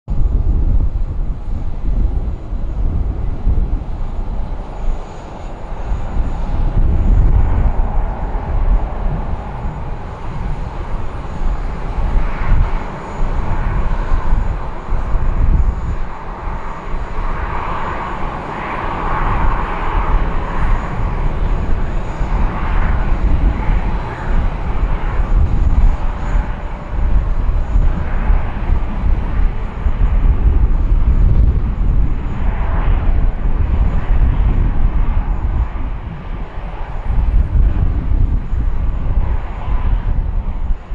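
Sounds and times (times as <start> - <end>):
jet engines rumbling: 0.1 - 40.9.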